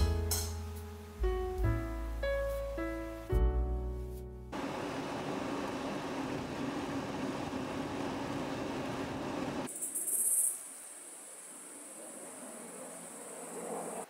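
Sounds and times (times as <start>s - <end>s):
insects droning: 4.6s - 14.0s.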